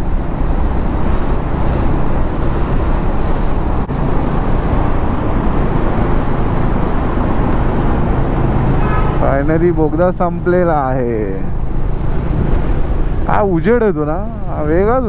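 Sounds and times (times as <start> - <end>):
wind and road rush: 0.0 - 15.0.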